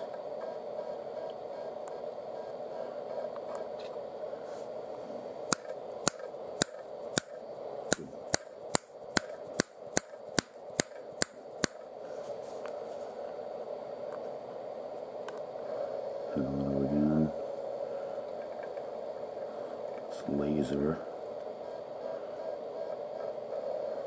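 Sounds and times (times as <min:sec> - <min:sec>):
steady low hum: 0:00.0 - 0:24.0
sharp mechanical clicks: 0:05.5 - 0:11.8.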